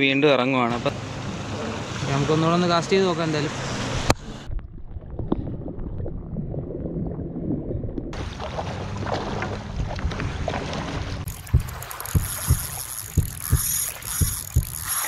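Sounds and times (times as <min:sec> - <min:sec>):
wind rumbling on microphone: 0:03.8 - 0:15.0
water lapping around kayak: 0:08.1 - 0:15.0
small splashes: 0:08.2 - 0:15.0.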